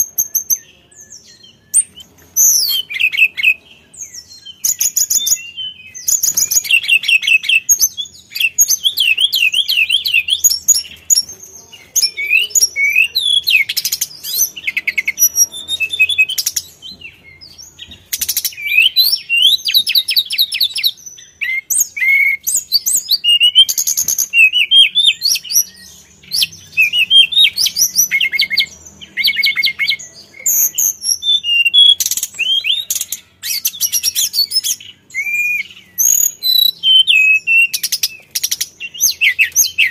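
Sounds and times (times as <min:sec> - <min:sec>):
bird singing whistled trills: 0:00.0 - 0:39.9.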